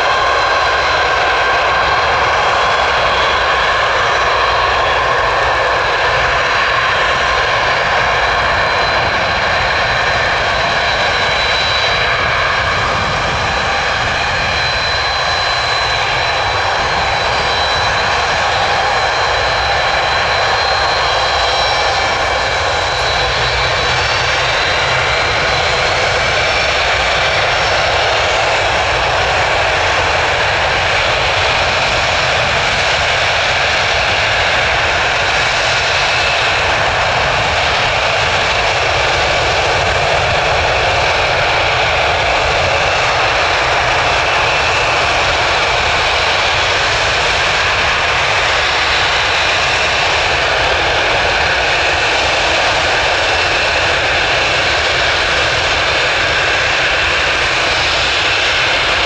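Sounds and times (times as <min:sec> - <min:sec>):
high engine whine: 0:00.0 - 0:59.0
jet engines running: 0:00.0 - 0:59.0.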